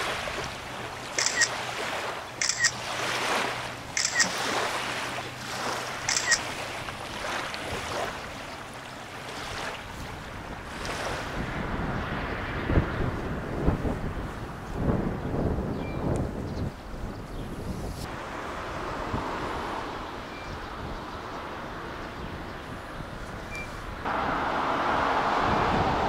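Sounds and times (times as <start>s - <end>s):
small waves lapping on shore: 0.0s - 15.0s, 17.8s - 26.0s
distant boat engine hum: 0.0s - 16.0s, 16.8s - 26.0s
wind rumble on microphone: 9.4s - 26.0s.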